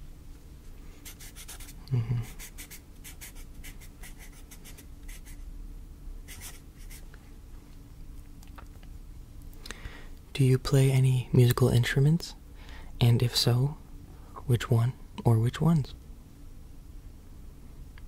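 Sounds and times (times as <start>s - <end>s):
pen scratching on paper: 1.0s - 1.8s, 2.4s - 5.4s, 6.3s - 7.0s
low vocal sound: 1.8s - 2.4s.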